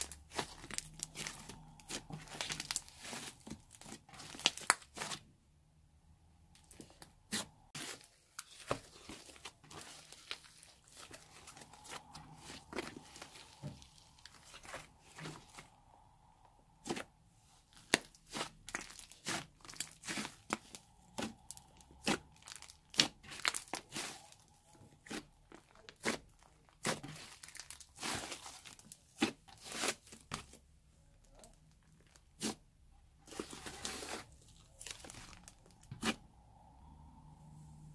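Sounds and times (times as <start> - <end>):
slime crackling and popping: 0.0 - 5.2, 17.8 - 24.4.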